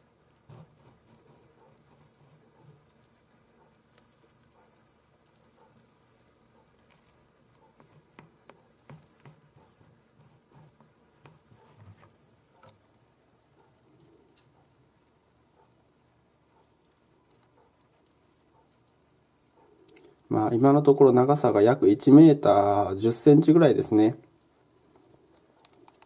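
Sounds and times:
faint high chirp: 0:00.0 - 0:20.0.

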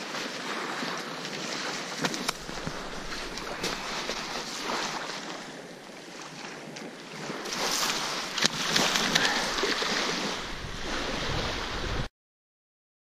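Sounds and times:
small waves washing on beach: 0:00.0 - 0:12.1
wind on microphone: 0:02.0 - 0:05.4, 0:07.4 - 0:12.1.

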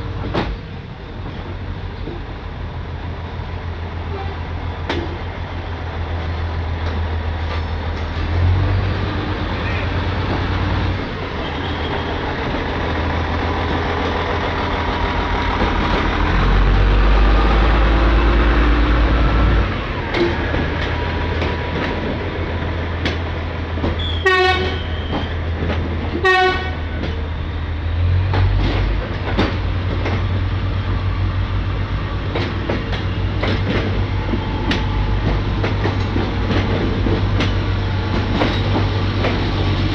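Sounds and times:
diesel train engine rumble: 0:00.0 - 0:39.9
train wheels clicking over rail joints: 0:04.8 - 0:05.4, 0:10.0 - 0:39.9
train horn toots: 0:24.0 - 0:25.3, 0:26.2 - 0:26.8.

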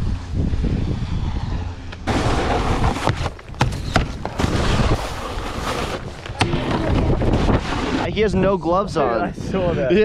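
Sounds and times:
wind buffeting microphone: 0:00.0 - 0:10.0
snowboard scraping snow: 0:01.1 - 0:08.1.

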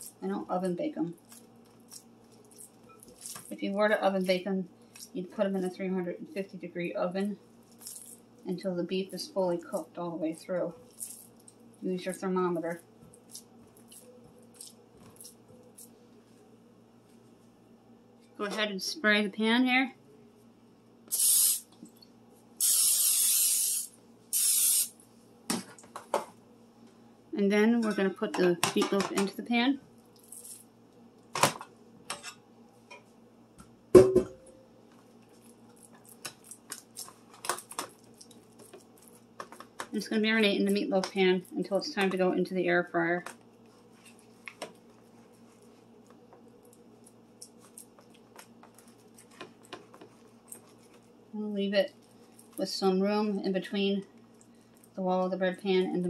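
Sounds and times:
steady low hum: 0:00.0 - 0:56.0
aerosol spray hissing: 0:21.1 - 0:21.6, 0:22.6 - 0:24.9.

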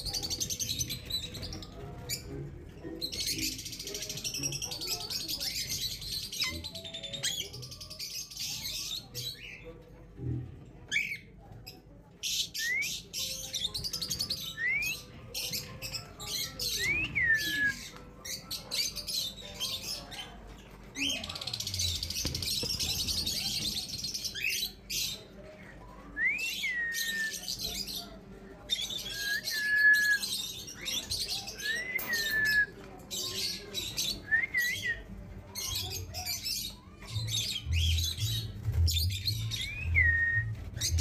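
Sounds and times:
high chattering of parakeets: 0:00.0 - 0:09.9, 0:10.8 - 0:41.0
parakeets whistling calls: 0:29.0 - 0:32.7.

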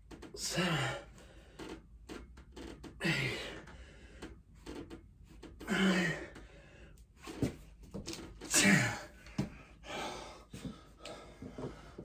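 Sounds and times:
man grunting with effort: 0:05.6 - 0:06.4, 0:08.5 - 0:09.2.

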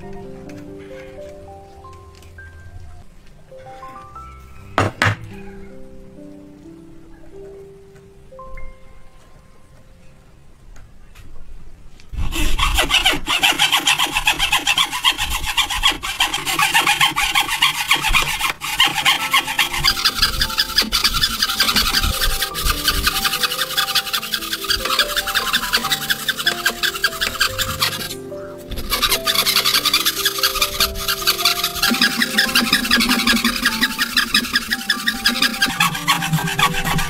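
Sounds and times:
light melodic background music: 0:00.0 - 0:11.1, 0:15.4 - 0:37.0
hand saw cutting wood: 0:12.2 - 0:37.0.

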